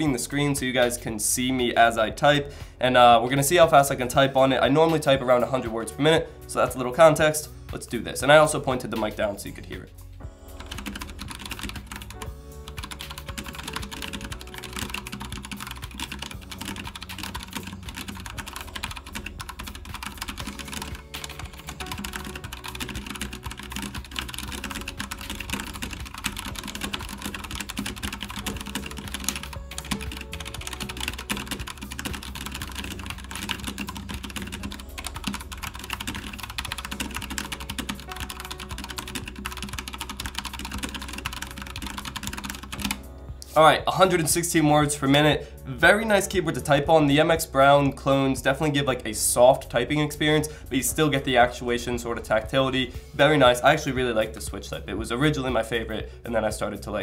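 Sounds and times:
background music: 0:00.0 - 0:57.0
fast typing on mechanical keyboard: 0:10.6 - 0:43.0.

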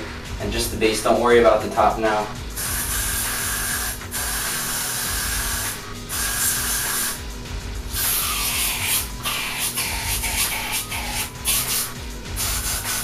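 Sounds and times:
hairspray hissing from aerosol can: 0:02.6 - 0:07.2, 0:07.9 - 0:13.0.

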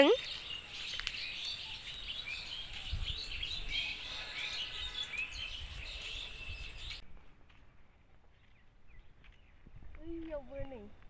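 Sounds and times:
small birds chirping: 0:00.0 - 0:07.0, 0:08.2 - 0:10.9
wind rumble on microphone: 0:02.2 - 0:07.3, 0:08.8 - 0:11.0.

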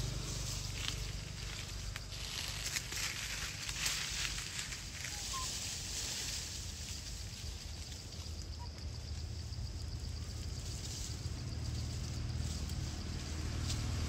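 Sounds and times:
low rumble: 0:00.0 - 0:07.6
faint short chirps: 0:05.0 - 0:05.6.

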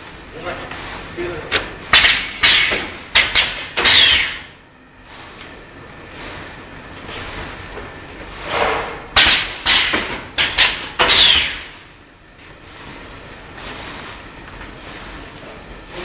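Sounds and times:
steady low machine noise: 0:00.0 - 0:16.0
sharp knocks and scrapes: 0:08.3 - 0:11.5.

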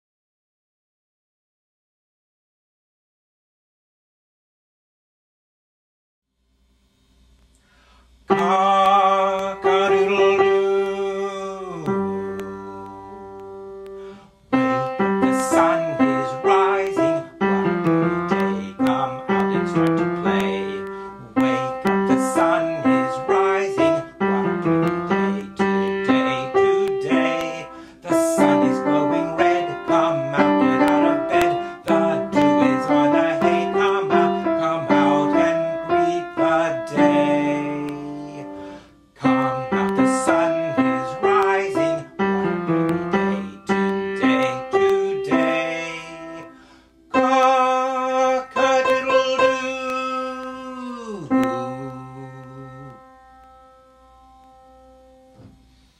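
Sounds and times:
piano melody: 0:08.3 - 0:55.6.

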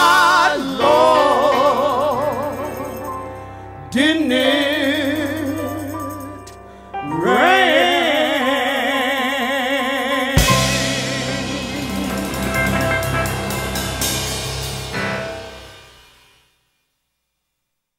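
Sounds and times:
woman singing with vibrato: 0:07.2 - 0:13.0
band closing chord: 0:10.4 - 0:16.3
cymbal crash: 0:10.4 - 0:16.5.

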